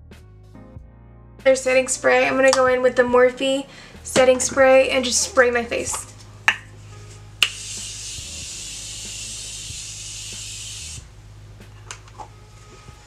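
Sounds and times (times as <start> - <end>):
spray hissing: 7.4 - 11.0.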